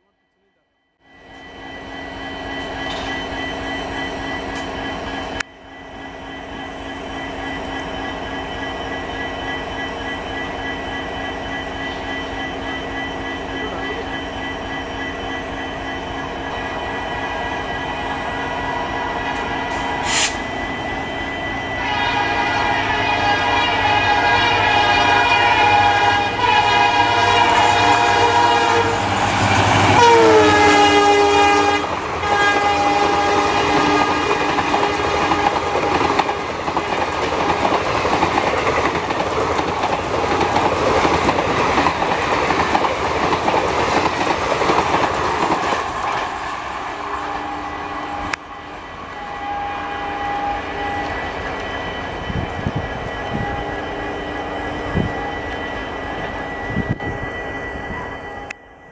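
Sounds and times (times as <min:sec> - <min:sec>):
locomotive horn blaring: 0:17.1 - 0:36.6, 0:47.1 - 0:51.6
train wheels clattering: 0:27.5 - 0:46.4.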